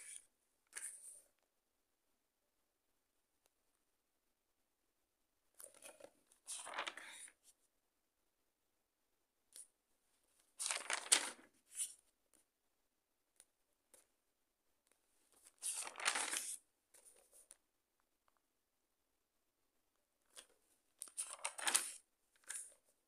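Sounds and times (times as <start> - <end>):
notebook pages turning: 5.6 - 7.2, 10.6 - 12.0, 15.4 - 17.5, 20.3 - 22.8.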